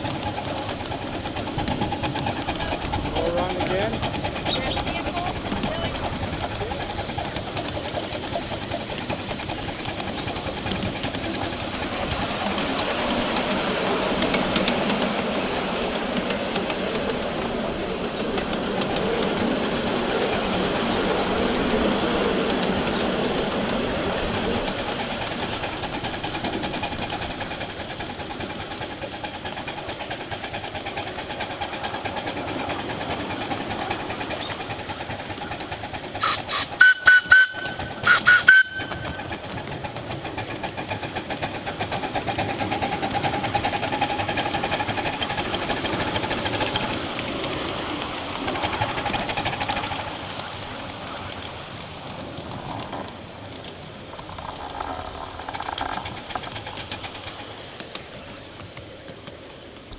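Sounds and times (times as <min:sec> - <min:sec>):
miniature steam locomotive running: 0:00.0 - 0:59.9
steam whistle short toots: 0:36.2 - 0:39.3.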